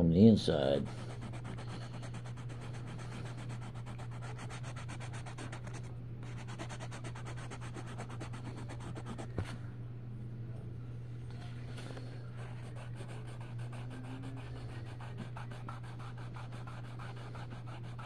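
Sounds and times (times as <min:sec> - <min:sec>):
steady low hum: 0:00.0 - 0:18.0
coloured pencil scratching on paper: 0:00.9 - 0:09.3, 0:12.4 - 0:18.0.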